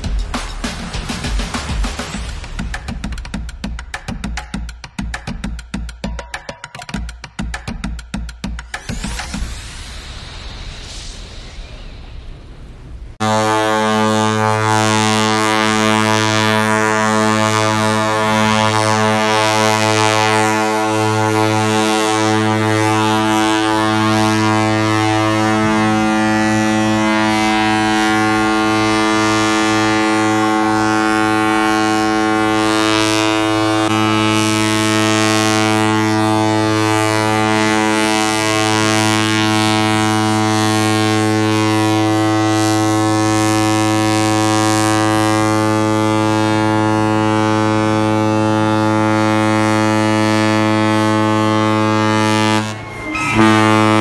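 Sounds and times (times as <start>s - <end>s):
ship's horn long blast: 13.2s - 54.0s.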